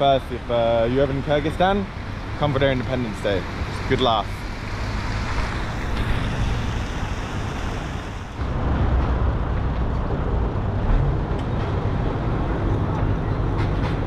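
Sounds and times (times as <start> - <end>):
cars passing on street: 0.0 - 14.0
wind rumbling on microphone: 3.5 - 14.0.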